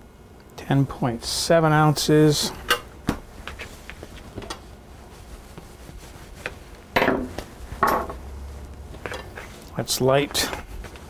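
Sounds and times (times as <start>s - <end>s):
hands handling dough: 2.8s - 11.0s.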